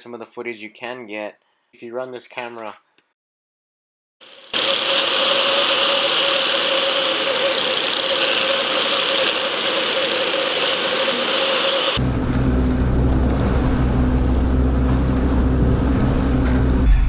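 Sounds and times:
outboard motor hum: 4.2 - 16.4.

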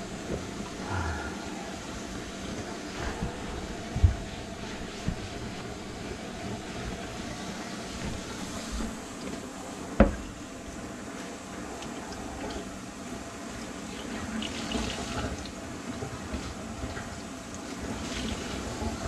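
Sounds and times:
water rushing down drain pipes: 11.5 - 19.0.

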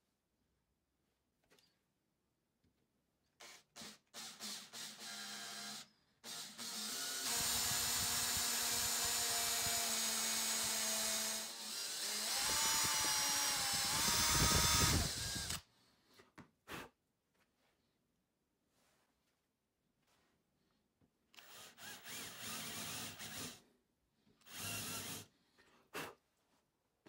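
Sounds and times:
electric drill boring into wood: 3.4 - 15.6, 21.4 - 23.6, 24.4 - 25.3.

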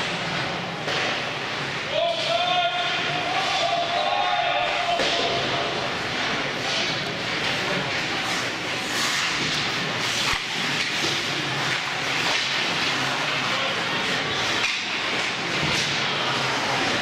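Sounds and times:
skate blades scraping ice: 5.7 - 17.0.

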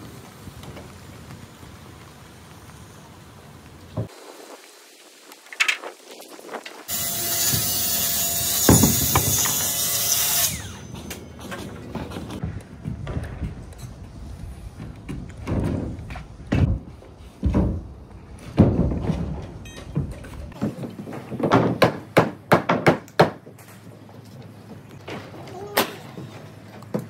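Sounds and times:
plywood sheets thudding on joists: 7.4 - 10.0, 14.8 - 23.6
pneumatic nail gun shots: 8.4 - 11.2.

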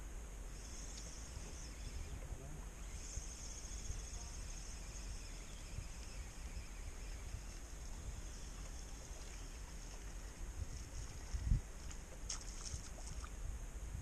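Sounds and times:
insects chirring: 0.0 - 13.6
wind rumbling on microphone: 0.0 - 14.0
faint ticks: 0.6 - 2.1.

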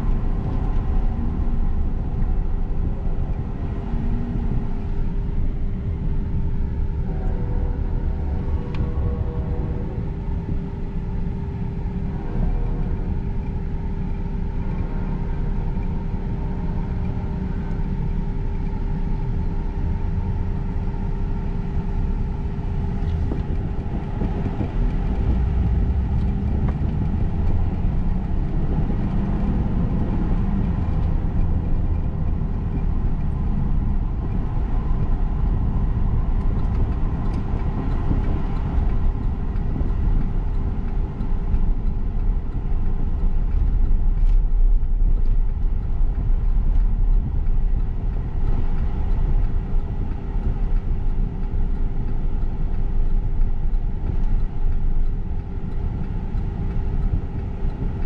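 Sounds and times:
constant hum: 0.0 - 58.0
engine and tyre rumble: 0.0 - 58.0.

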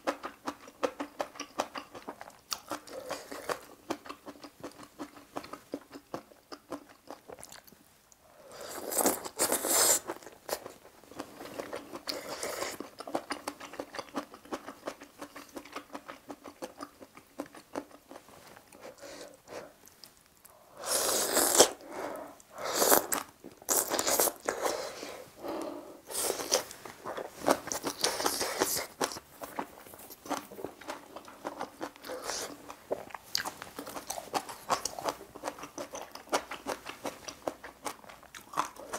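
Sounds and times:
wet chewing: 8.6 - 20.6, 21.2 - 38.9
noodles being slurped: 20.8 - 25.3.

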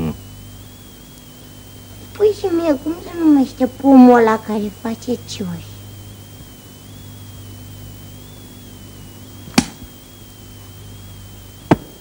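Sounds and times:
faint high whine: 0.0 - 12.0
low hum and hiss: 0.0 - 12.0
sharp click: 9.5 - 9.9.

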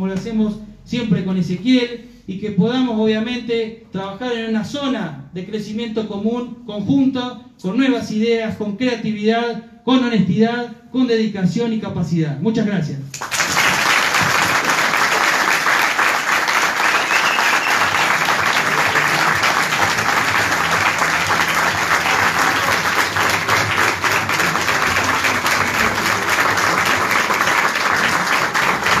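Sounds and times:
crowd applauding: 13.2 - 29.0.

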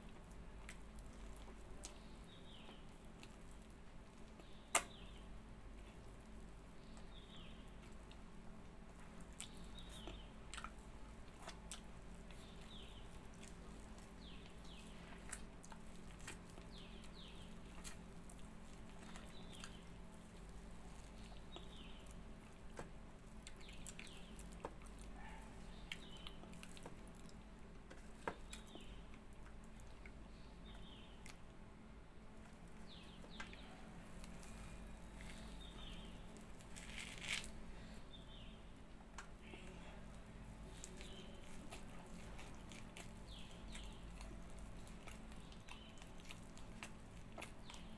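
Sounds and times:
wet smacking of fruit pulp: 4.4 - 5.2
small bird chirping: 18.6 - 22.3, 32.8 - 38.7.

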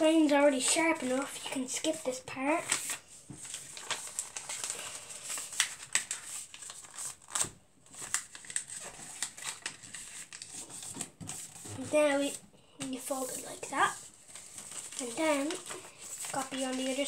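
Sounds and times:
paper rustling and crinkling: 0.0 - 17.0
paper tapping and scraping on desk: 7.4 - 17.0.

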